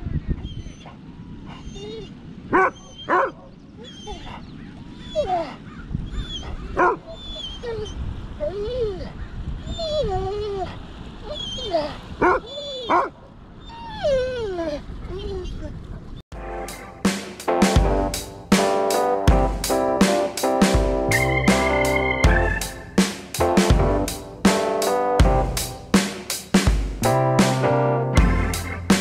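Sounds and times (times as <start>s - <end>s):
dog whining and yipping: 0.4s - 15.7s.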